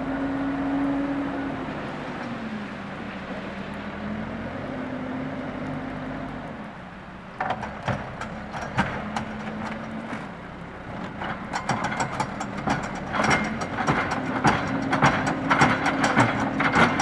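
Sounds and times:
diesel engine running: 0.0s - 17.0s
bucket linkage clanking: 7.4s - 17.0s.

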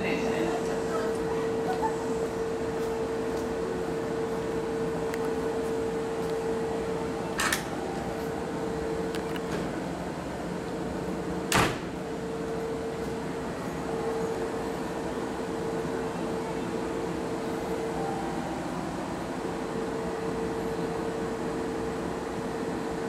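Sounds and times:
electric train idling hum: 0.0s - 23.0s.

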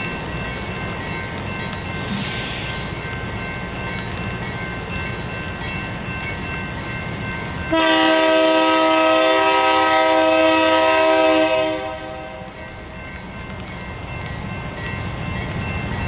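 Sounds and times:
train rumbling: 0.0s - 16.0s
locomotive air horn: 7.7s - 12.5s.

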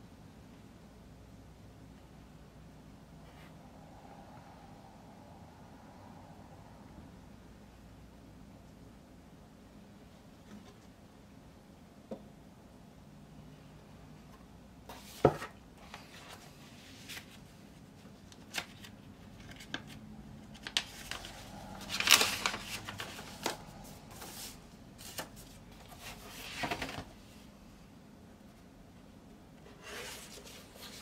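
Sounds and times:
paper sleeves rustling: 14.9s - 27.4s, 29.6s - 31.0s
shrink wrap crinkling: 18.4s - 24.3s.

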